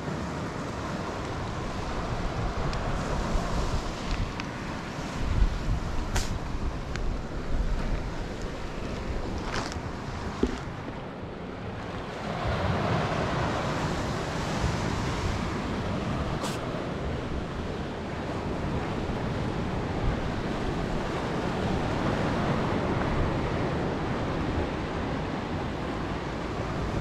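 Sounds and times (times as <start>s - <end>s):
surf washing over rocky shore: 0.0s - 27.0s
wind buffeting microphone: 0.1s - 11.0s.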